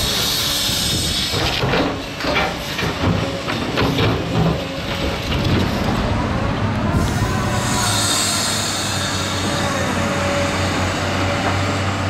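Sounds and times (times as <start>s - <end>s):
diesel engine running with hiss: 0.0s - 12.0s
metallic knocks and clanks: 1.3s - 5.8s.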